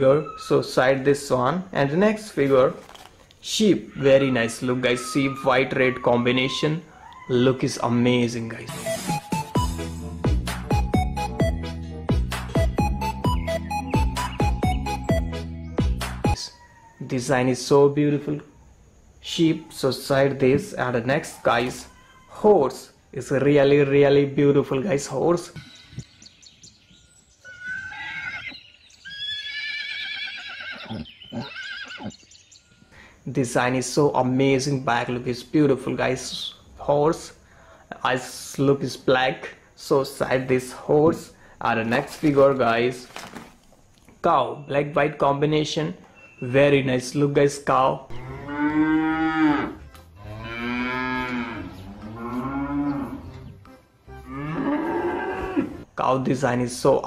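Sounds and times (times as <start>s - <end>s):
horse whinnying: 27.4s - 32.2s, 54.3s - 55.9s
cows mooing: 48.1s - 53.6s, 54.2s - 55.8s.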